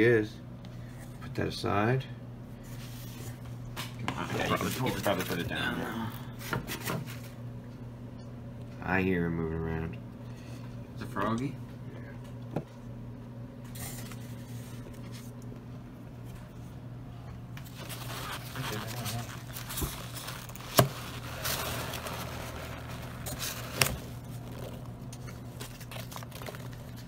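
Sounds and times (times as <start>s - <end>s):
low steady hum: 0.0s - 27.0s
hands rustling packing peanuts: 17.6s - 27.0s
plastic cup handled: 17.6s - 27.0s.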